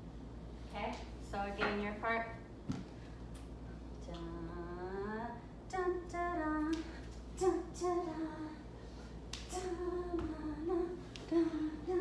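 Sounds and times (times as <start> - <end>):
woman singing wordless syllables: 4.0 - 8.7, 9.4 - 12.0.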